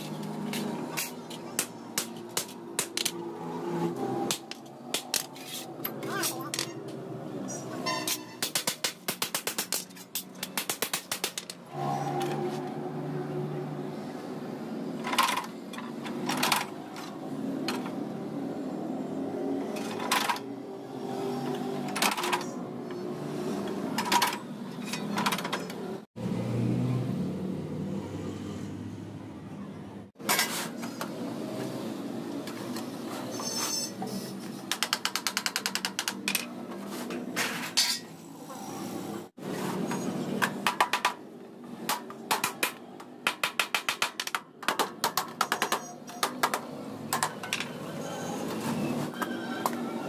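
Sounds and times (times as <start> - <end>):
workshop din: 0.0 - 50.0
rapid metallic taps on sheet metal: 8.4 - 11.5.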